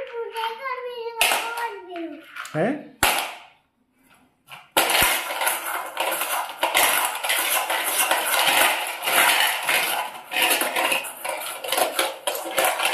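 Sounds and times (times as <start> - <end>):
stones rattling in steel bowl: 4.5 - 12.9.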